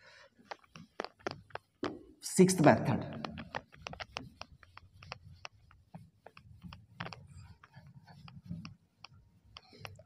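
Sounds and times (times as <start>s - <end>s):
duster wiping whiteboard: 3.3s - 10.0s.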